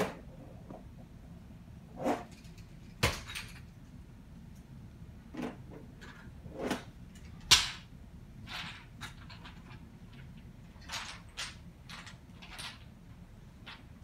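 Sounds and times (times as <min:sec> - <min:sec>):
toys knocking and clattering: 0:02.3 - 0:03.8, 0:08.5 - 0:12.9.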